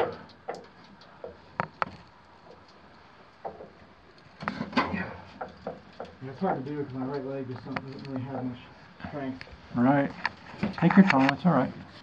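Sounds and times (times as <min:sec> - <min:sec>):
climbing down wooden ladder: 0:00.0 - 0:02.8, 0:03.4 - 0:09.1.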